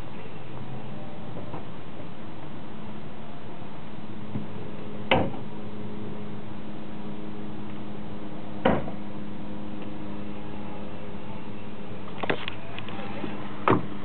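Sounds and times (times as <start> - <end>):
low hum inside car: 0.0 - 14.0
sharp knocks: 8.6 - 9.0.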